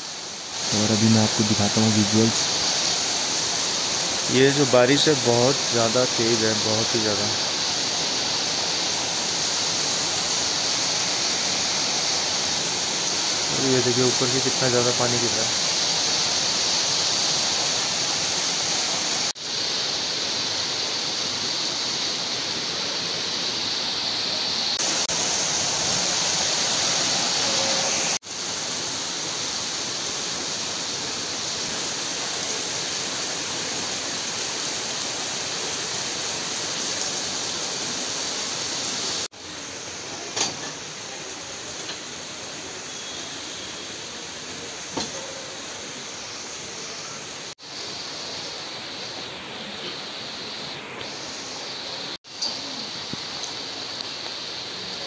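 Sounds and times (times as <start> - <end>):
very heavy rain hissing: 0.0 - 55.0.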